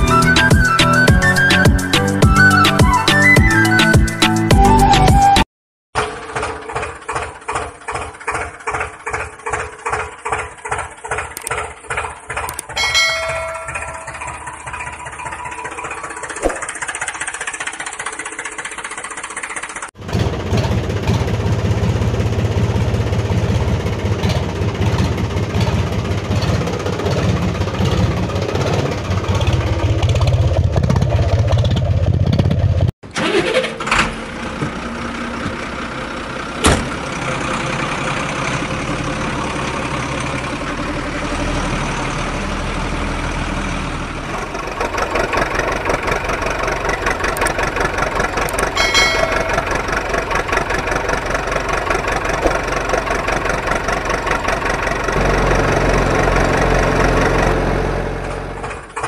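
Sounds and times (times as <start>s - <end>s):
steady engine sound: 6.0s - 59.0s
vehicle engine idling: 6.0s - 59.0s
brief chime: 12.8s - 15.7s, 48.8s - 50.2s.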